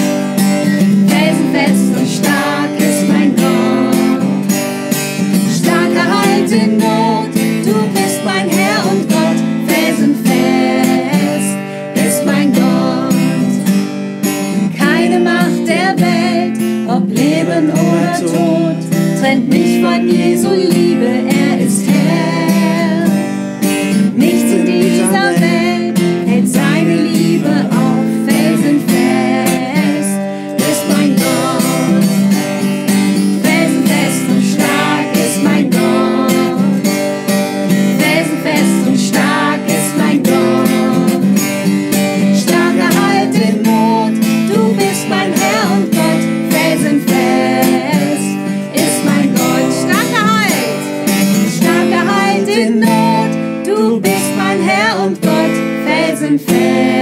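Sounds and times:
acoustic guitar strumming: 0.0s - 57.0s
voices singing: 0.8s - 13.7s, 14.6s - 57.0s.

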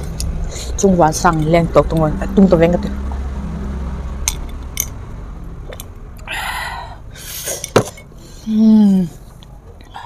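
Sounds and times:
breathy exhales: 6.2s - 7.6s
short hummed vocal sound: 8.4s - 9.3s.

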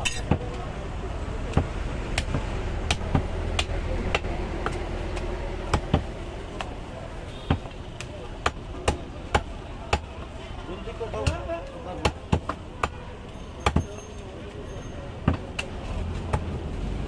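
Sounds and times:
background noise: 0.0s - 17.0s
cleaver chopping on wooden block: 1.5s - 6.7s, 7.5s - 7.8s, 8.4s - 10.1s, 11.2s - 13.0s, 13.6s - 13.9s.

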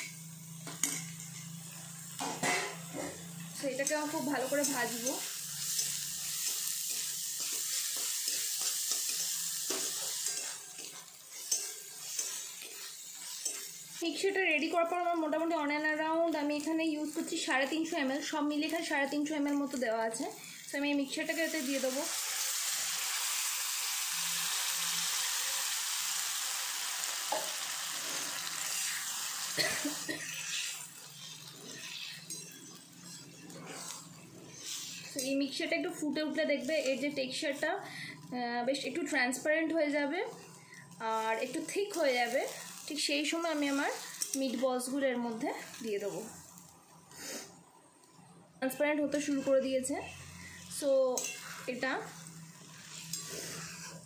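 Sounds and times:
metal spatula scraping a wok: 0.0s - 15.4s, 27.8s - 37.7s, 41.2s - 44.9s, 49.0s - 54.0s
vegetables sizzling in a wok: 0.0s - 54.0s.

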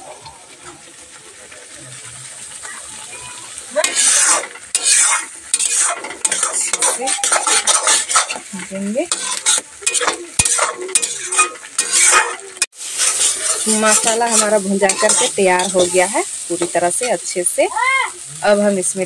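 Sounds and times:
paste sizzling: 0.6s - 19.0s
metal spatula scraping pan: 3.7s - 17.6s.

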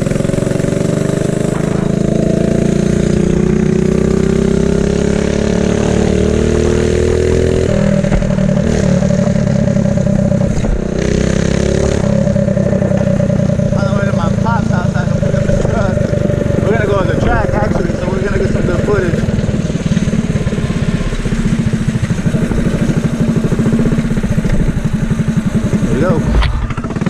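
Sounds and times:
mini bike engine running: 7.6s - 27.0s.

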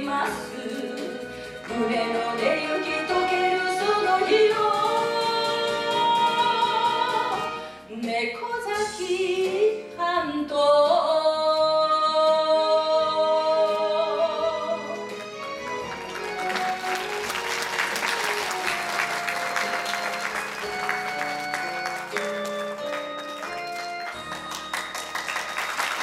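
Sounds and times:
woman singing with vibrato: 0.0s - 15.0s
audience applause: 15.2s - 26.0s.

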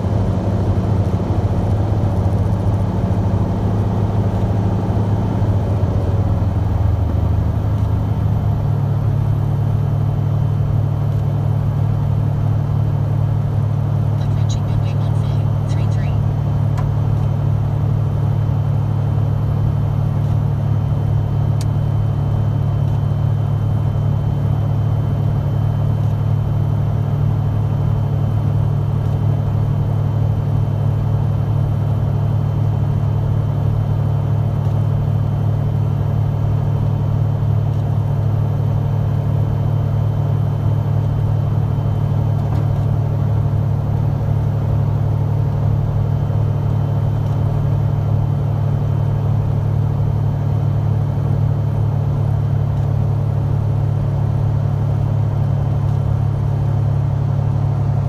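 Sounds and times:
propeller aircraft engine drone: 0.0s - 58.0s.

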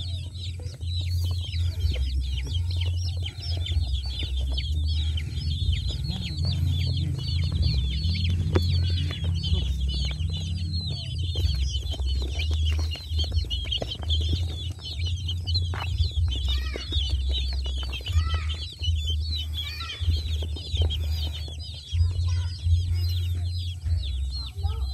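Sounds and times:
chicks peeping: 0.0s - 24.9s
low rumble: 0.0s - 24.9s.

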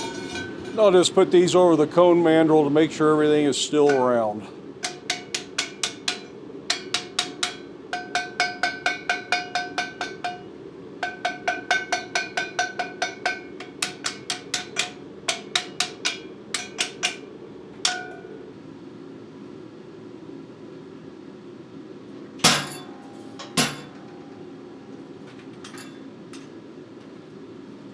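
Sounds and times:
hammer striking steel plate: 4.8s - 17.2s, 17.8s - 18.4s, 22.4s - 24.4s.

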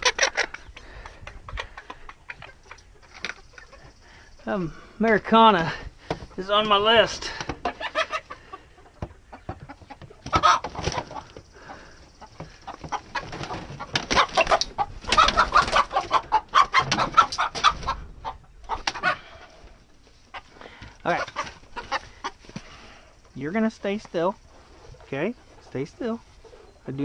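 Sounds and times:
hens squawking and clucking: 0.0s - 27.0s
scuffling: 5.1s - 26.6s.

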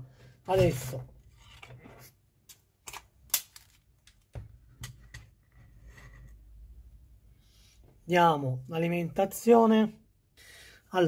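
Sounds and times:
multimeter being handled: 2.5s - 5.0s.

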